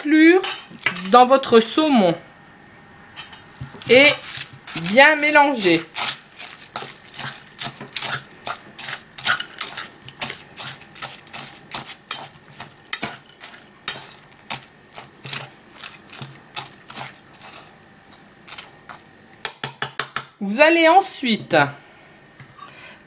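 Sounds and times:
fork scraping metal bowl: 0.4s - 1.2s, 3.2s - 19.0s.

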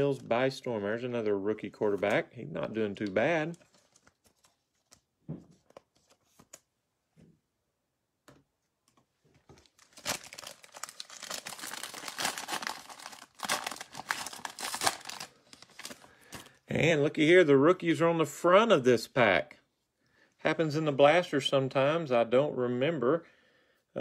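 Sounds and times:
foil wrapper tearing and crinkling: 9.7s - 16.4s.

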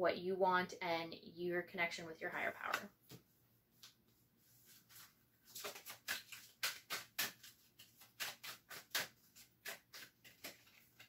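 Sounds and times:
cards being shuffled: 4.8s - 11.0s.

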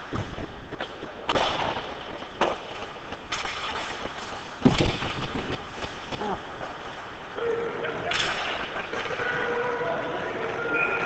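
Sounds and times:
skate blades scraping ice: 0.0s - 7.0s.

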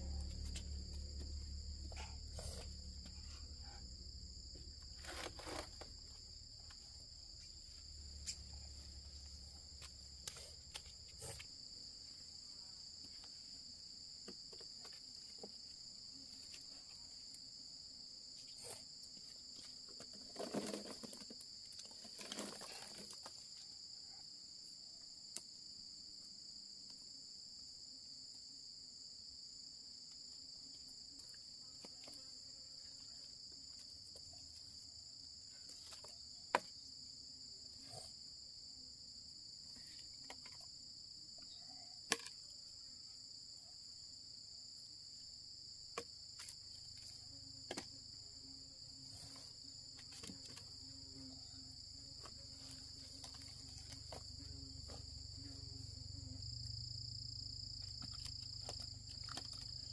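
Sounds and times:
high-pitched insect chorus: 0.0s - 13.6s.

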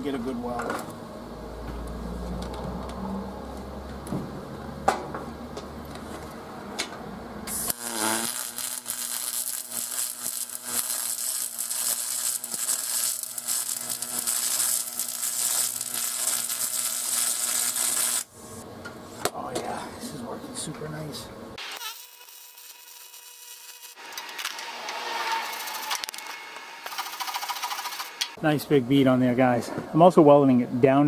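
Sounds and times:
welding arc crackling hiss: 7.4s - 19.2s, 21.6s - 28.4s.

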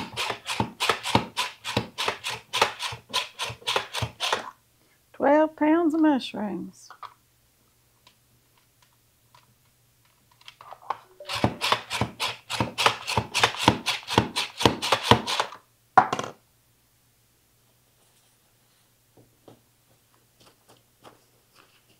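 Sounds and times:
mushrooms sliced on slicer: 0.0s - 4.5s, 11.3s - 15.5s.

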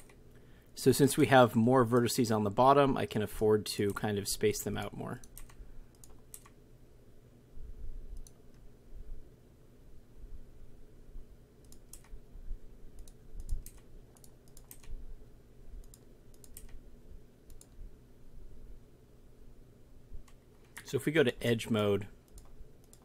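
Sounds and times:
keyboard and mouse clicks: 0.0s - 0.2s, 5.2s - 6.6s, 8.1s - 8.6s, 11.6s - 12.2s, 13.0s - 15.0s, 15.8s - 16.8s, 17.5s - 17.8s, 22.3s - 23.0s
faint low hum: 0.0s - 23.0s.

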